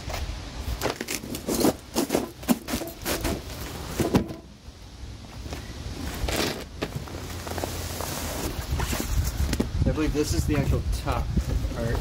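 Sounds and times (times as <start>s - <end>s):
cardboard box rustling and scraping: 6.0s - 9.7s.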